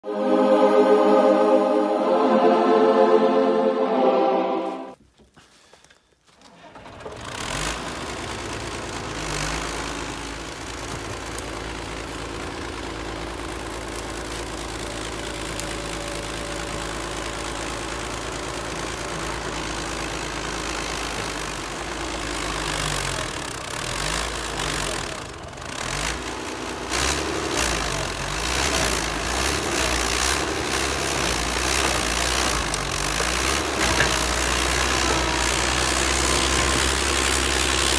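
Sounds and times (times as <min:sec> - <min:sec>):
intro music: 0:00.0 - 0:05.0
blade pushing brush and soil: 0:06.3 - 0:37.9
bulldozer diesel engine under load: 0:06.5 - 0:37.9.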